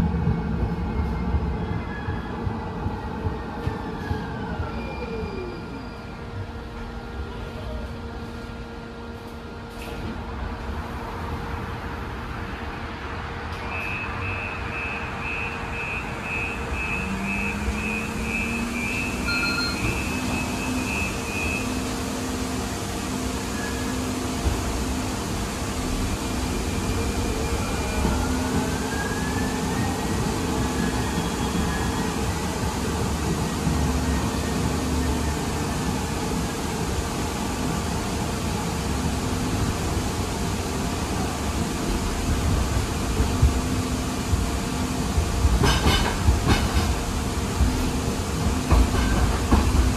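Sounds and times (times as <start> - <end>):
light-rail car rumble: 0.0 - 49.9
short high beeps: 13.8 - 21.8.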